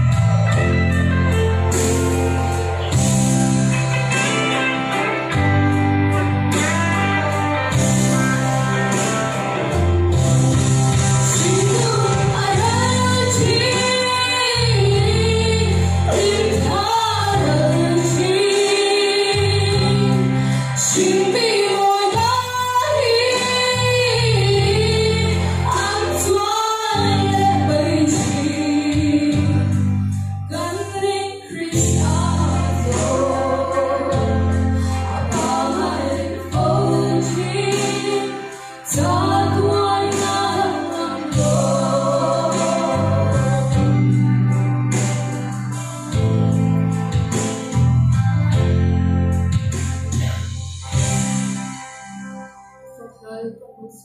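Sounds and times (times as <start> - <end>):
backing track with bass line: 0.0 - 53.5
girls singing a hymn duet: 30.5 - 44.2.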